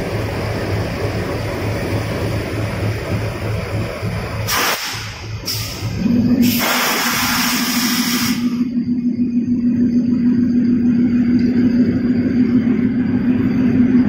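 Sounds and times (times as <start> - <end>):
diesel locomotive engine idling: 0.0 - 14.0
loud hiss: 4.4 - 8.5.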